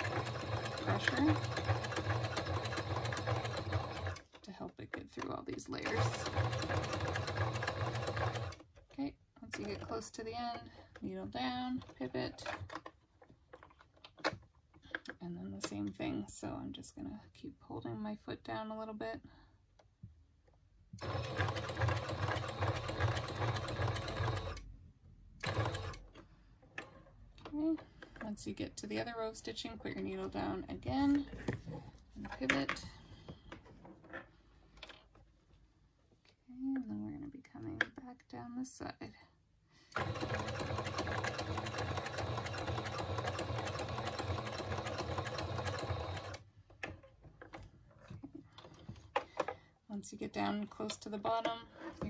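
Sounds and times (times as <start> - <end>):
sewing machine stitching: 0.0 - 4.6, 5.2 - 8.6, 21.0 - 24.7, 25.4 - 26.1, 40.0 - 47.0.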